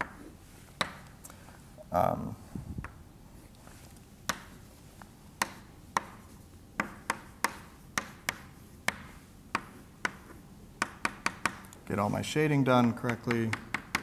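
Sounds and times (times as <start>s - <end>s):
chalk tapping on a blackboard: 0.0s - 1.2s, 4.2s - 4.7s, 5.4s - 14.0s.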